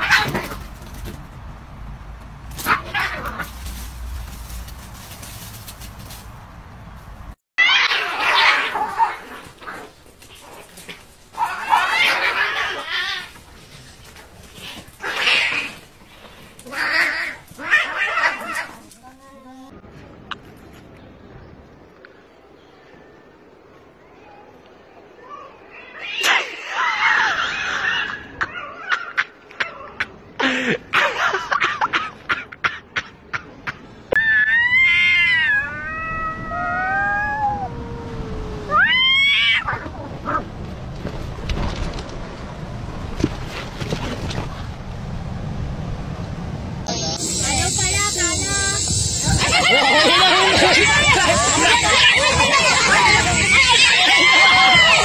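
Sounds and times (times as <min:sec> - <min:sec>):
cats screeching and yowling: 0:02.6 - 0:03.5, 0:07.6 - 0:13.5, 0:14.6 - 0:15.9, 0:16.6 - 0:18.9, 0:25.2 - 0:29.2, 0:34.1 - 0:40.4, 0:47.2 - 0:55.0.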